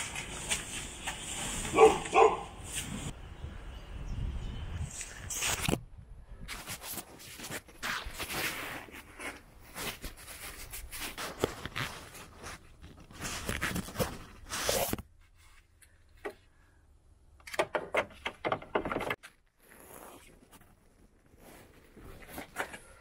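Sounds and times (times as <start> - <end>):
rustling and scraping: 0.0 - 3.2, 6.5 - 16.6, 18.8 - 23.0.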